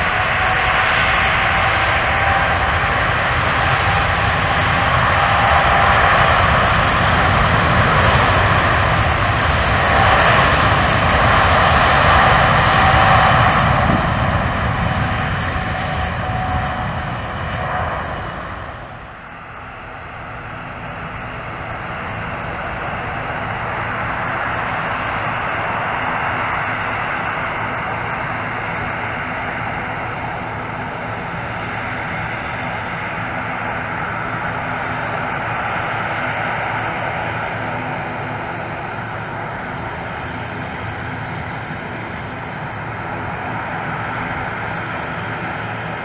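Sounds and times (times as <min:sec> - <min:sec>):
jet airliner roar at takeoff: 0:00.0 - 0:46.0.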